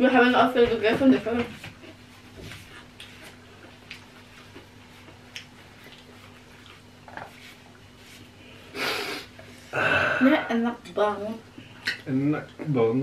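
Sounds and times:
steady low hum: 0.0 - 13.0
soft eating clicks and rustles: 0.8 - 8.6.

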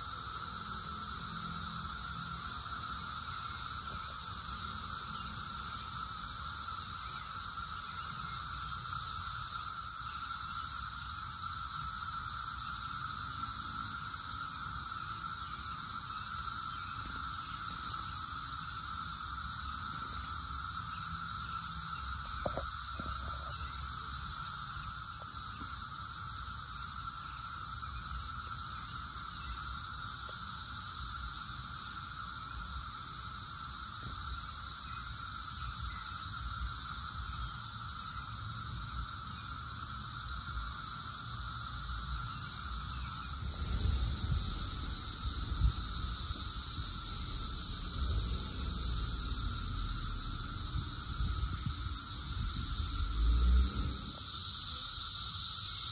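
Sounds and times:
cicadas droning: 0.0 - 55.9
high hiss: 0.0 - 55.9.

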